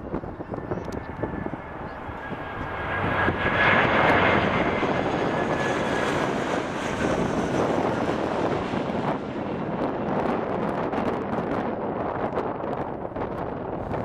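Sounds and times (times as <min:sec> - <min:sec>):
jet engines passing overhead: 0:00.0 - 0:14.0.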